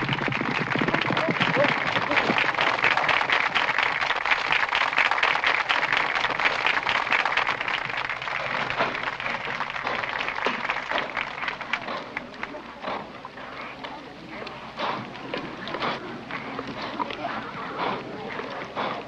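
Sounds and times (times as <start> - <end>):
crowd applauding: 0.0 - 13.5.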